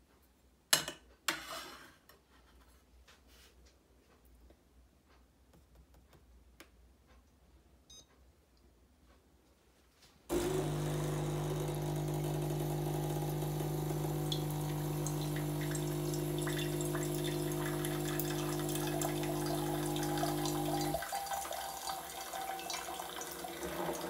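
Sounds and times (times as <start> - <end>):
coffee machine pump humming: 10.3 - 24.0
water running into cup: 10.3 - 24.0.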